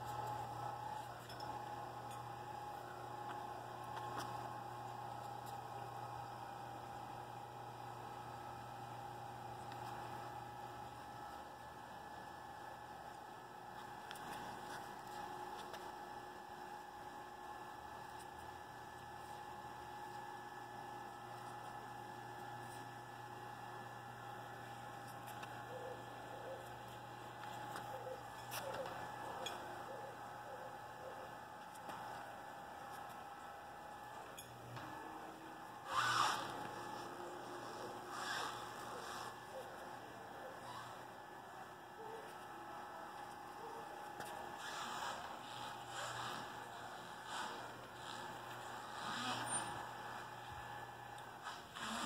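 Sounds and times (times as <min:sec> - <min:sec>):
electric motor hum with whine: 0:00.0 - 0:52.0
electric motor whine: 0:31.4 - 0:41.4, 0:44.0 - 0:52.0.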